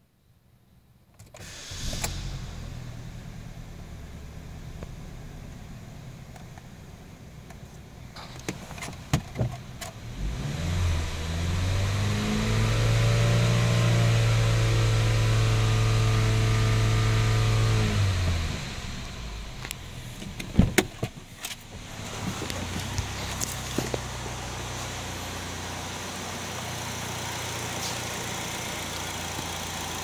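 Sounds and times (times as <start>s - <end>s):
car engine revving: 10.0s - 20.5s, 21.6s - 30.0s.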